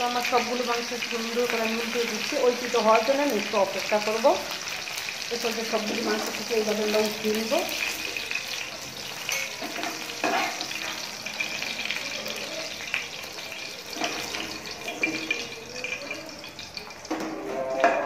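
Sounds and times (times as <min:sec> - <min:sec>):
chicken sizzling in oil: 0:00.0 - 0:18.0
metal spatula scraping and tapping: 0:09.2 - 0:11.9, 0:12.9 - 0:18.0.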